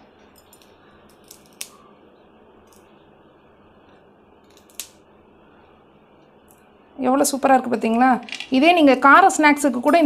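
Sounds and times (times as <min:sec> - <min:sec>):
fried snack cracking: 0:04.5 - 0:05.0.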